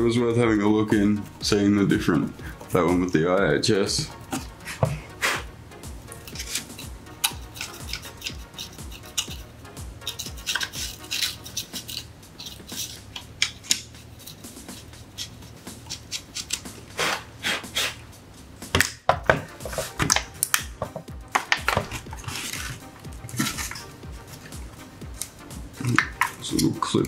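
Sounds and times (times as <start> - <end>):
plastic scraping: 19.3 - 23.9.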